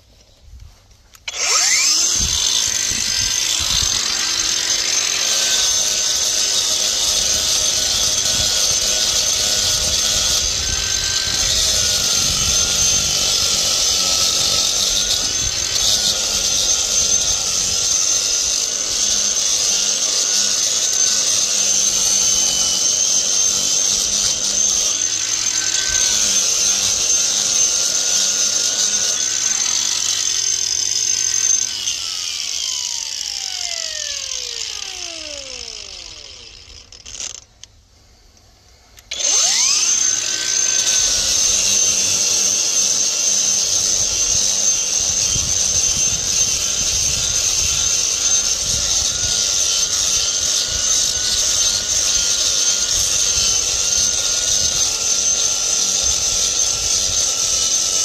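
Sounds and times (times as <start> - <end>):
angle grinder whining: 1.1 - 37.7, 39.0 - 58.0
grinder spinning down: 1.1 - 37.7, 39.0 - 58.0
grinding cement low rumble: 1.3 - 37.5.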